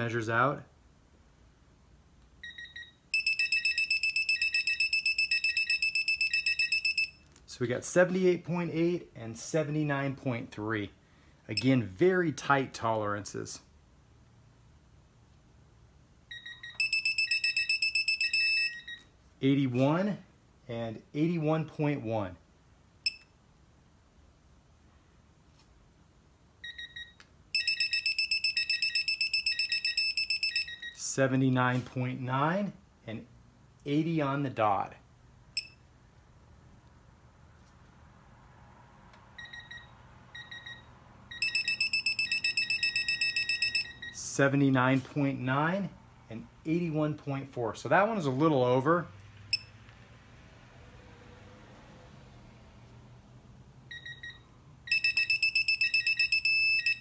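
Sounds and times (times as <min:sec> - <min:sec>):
rapid high-pitched beeping: 0:41.3 - 0:44.1
torque wrench beeping: 0:41.3 - 0:44.2, 0:53.9 - 0:57.0.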